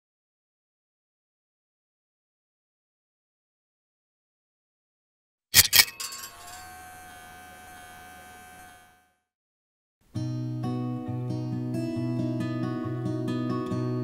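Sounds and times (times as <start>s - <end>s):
acoustic guitar music: 10.0s - 14.0s.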